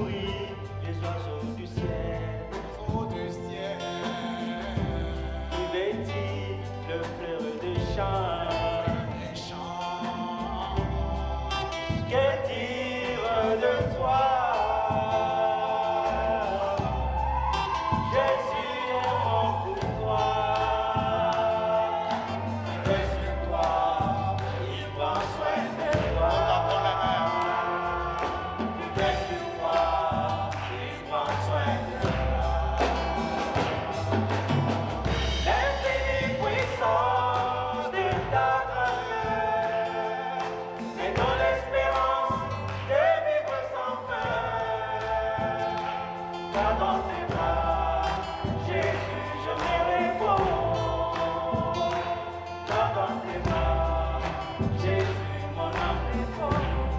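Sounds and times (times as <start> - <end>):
deep bass notes: 0.0 - 40.0
drum kit: 0.0 - 56.9
woman and man singing: 0.0 - 56.9.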